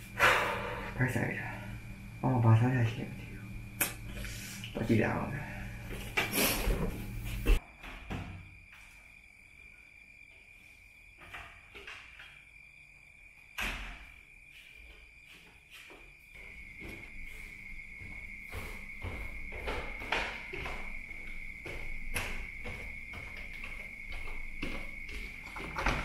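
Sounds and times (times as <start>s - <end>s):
cricket trill: 0.0s - 26.0s
footsteps on a staircase: 5.8s - 8.0s, 14.5s - 26.0s.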